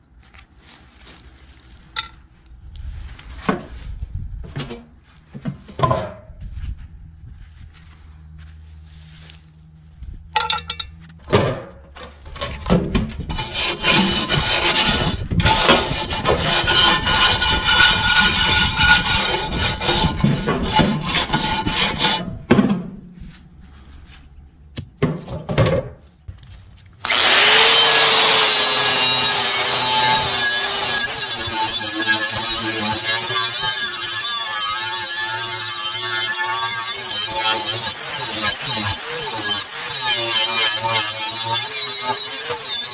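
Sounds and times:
angle grinder with wire wheel: 13.3s - 22.2s, 27.0s - 42.9s
scraping on cast-iron lid: 13.3s - 22.3s.

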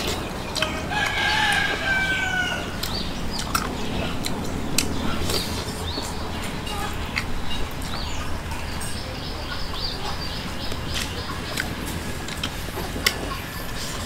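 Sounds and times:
chewing and mouth clicks: 0.0s - 1.9s, 2.6s - 8.0s, 10.0s - 14.0s
small birds chirping: 0.0s - 14.0s
rooster crowing: 0.6s - 3.3s.

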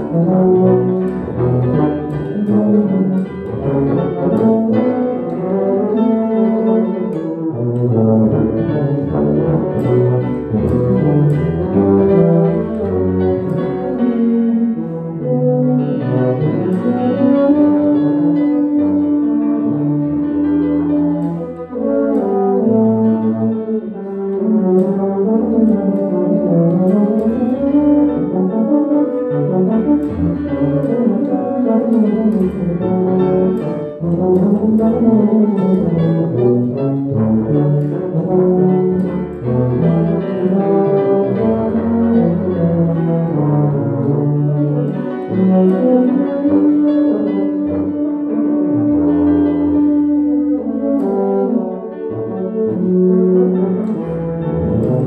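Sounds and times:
tubas playing a classical duet: 0.0s - 55.0s.

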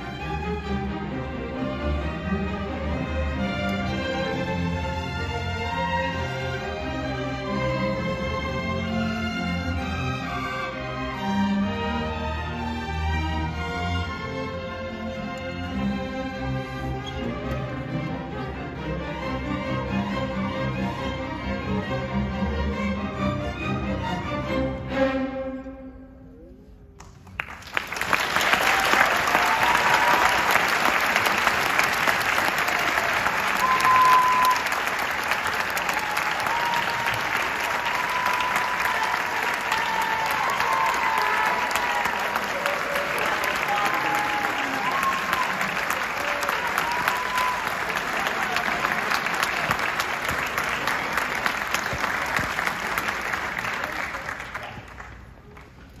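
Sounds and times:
audience applauding: 27.0s - 56.0s
high calls from audience: 32.3s - 35.0s.

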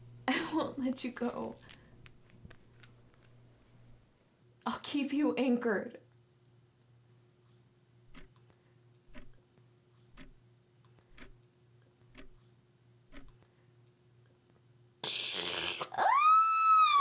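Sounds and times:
wall clock ticking: 8.1s - 9.4s, 10.0s - 12.4s, 13.1s - 13.5s.

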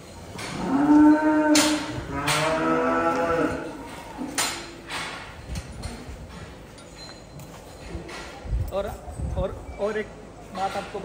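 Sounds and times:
cows mooing: 0.5s - 4.4s.

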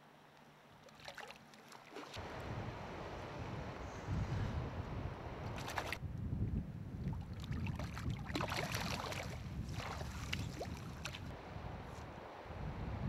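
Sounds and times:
river water splashing: 0.8s - 6.0s, 7.3s - 12.5s
wind rumble on microphone: 2.2s - 13.0s.

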